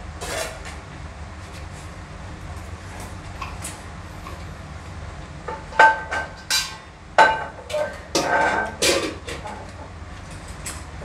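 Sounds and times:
metal cookware clanking: 5.7s - 9.6s.

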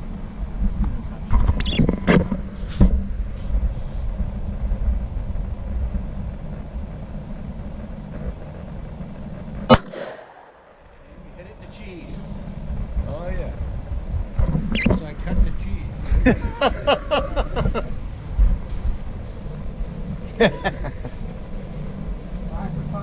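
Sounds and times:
steady low rumble: 0.0s - 23.0s
pistol shot: 9.7s - 10.8s.

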